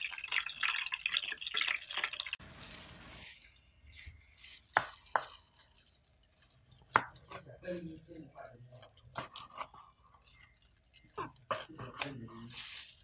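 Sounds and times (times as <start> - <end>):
hot oil crackling in frying pan: 0.0 - 3.3
knife chopping on cutting board: 6.9 - 7.4.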